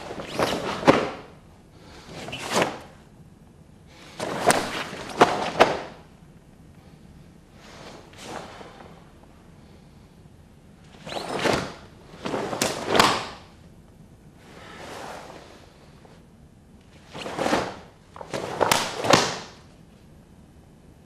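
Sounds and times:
karate uniforms swishing and snapping: 0.0s - 1.4s, 2.1s - 2.9s, 4.1s - 6.1s, 7.7s - 9.0s, 10.9s - 13.5s, 17.0s - 19.6s.

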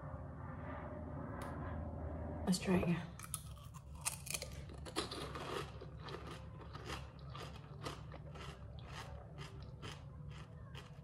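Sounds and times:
person chewing crunchy snack: 3.2s - 11.0s.

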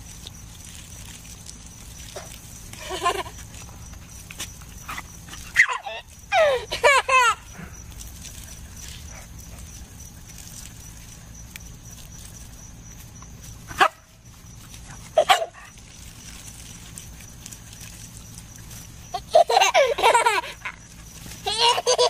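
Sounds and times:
baby laughing: 5.6s - 7.4s, 19.1s - 20.8s, 21.4s - 22.0s
small dog barking: 13.7s - 14.1s, 15.2s - 15.8s.

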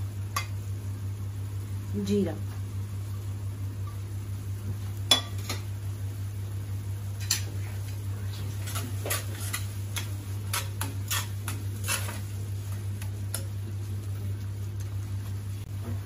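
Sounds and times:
metal spoon scraping pan: 8.6s - 12.3s.

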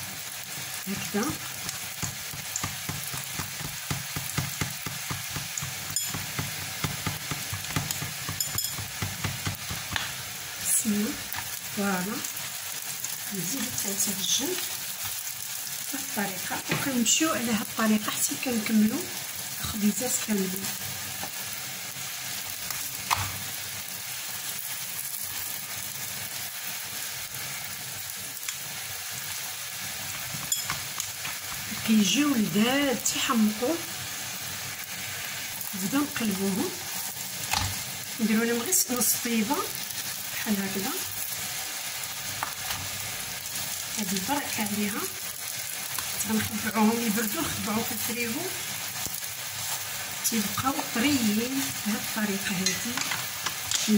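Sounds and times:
flatbreads sizzling in oil: 0.0s - 53.9s.

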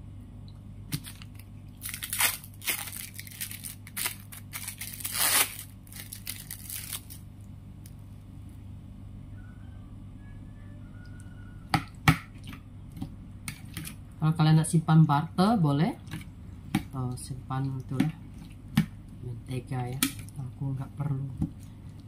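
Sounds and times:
steady low hum: 0.0s - 22.0s
plastic packaging crinkling: 0.9s - 7.3s.

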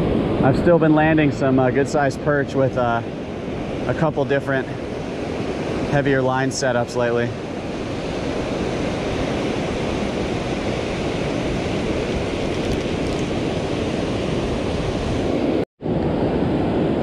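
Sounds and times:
ocean surf breaking: 0.0s - 17.0s
wind on microphone: 7.1s - 17.0s.

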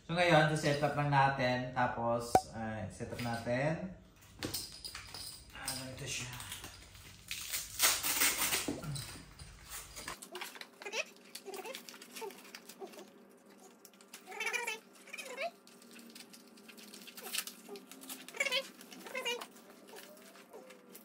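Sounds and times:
plastic parts clicking and rustling: 15.6s - 21.0s.

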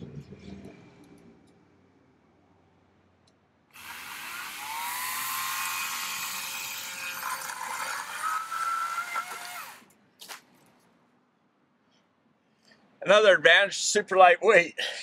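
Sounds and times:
electric chainsaw cutting branch: 3.7s - 9.9s.

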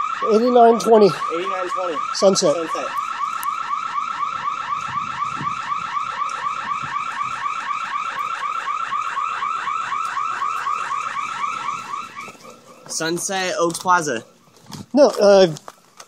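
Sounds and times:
electronic alarm siren whooping: 0.0s - 14.4s.

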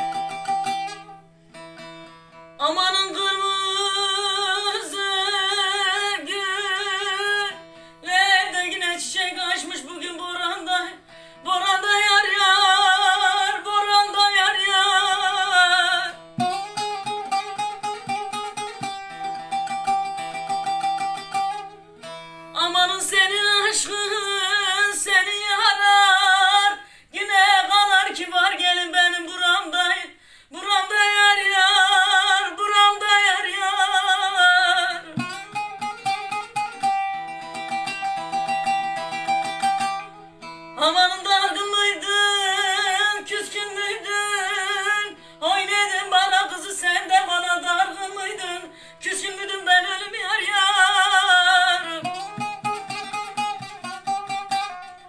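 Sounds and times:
long-necked lute playing: 0.0s - 26.8s, 27.4s - 55.0s
woman singing folk song: 0.0s - 55.0s.

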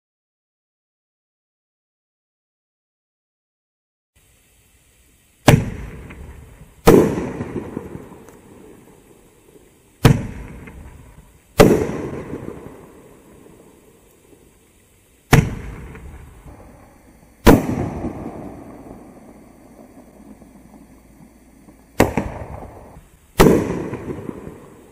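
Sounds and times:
fireworks bangs: 5.4s - 14.6s, 15.3s - 24.9s.

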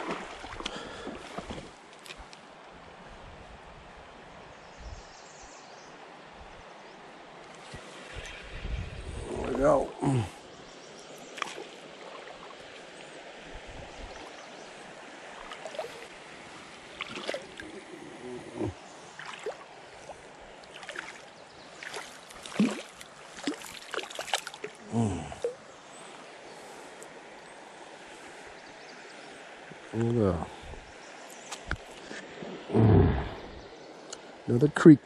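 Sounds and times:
water splashes and knocks: 0.0s - 2.3s, 11.4s - 12.6s, 15.4s - 16.1s, 17.0s - 17.8s, 19.2s - 21.2s, 21.8s - 24.8s
creek running over stones: 0.0s - 4.5s, 5.9s - 35.0s.

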